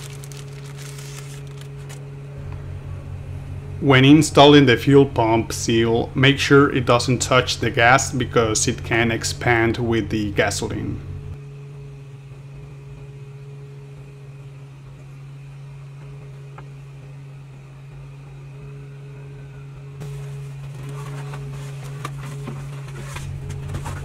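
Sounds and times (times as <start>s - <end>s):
cardboard box rustling: 0.0s - 2.0s, 20.0s - 24.0s
low mechanical hum: 0.0s - 24.0s.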